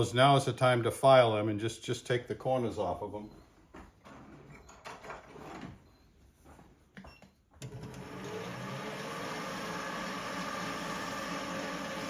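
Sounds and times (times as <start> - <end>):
metal lathe running: 7.7 - 12.0.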